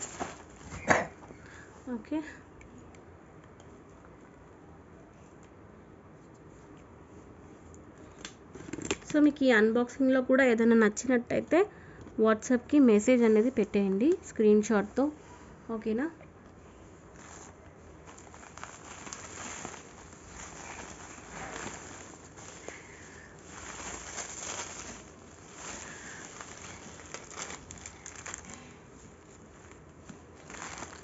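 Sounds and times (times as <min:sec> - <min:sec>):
bubble wrap crinkling: 0:00.0 - 0:00.9, 0:17.0 - 0:31.0.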